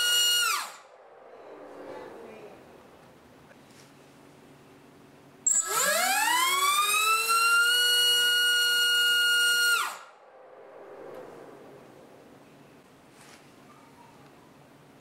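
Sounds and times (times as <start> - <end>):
motor and propeller whine: 5.6 - 13.0.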